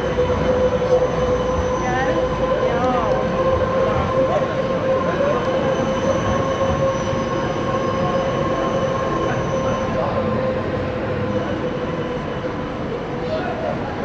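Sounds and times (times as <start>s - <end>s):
street traffic rumble: 0.0s - 14.0s
tram whining on rails: 0.0s - 14.0s.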